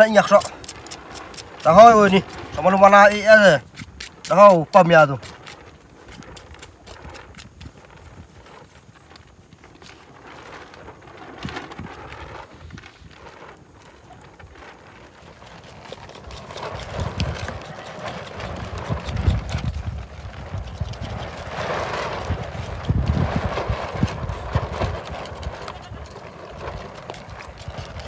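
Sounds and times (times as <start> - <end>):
knife scraping skin: 0.0 - 7.6.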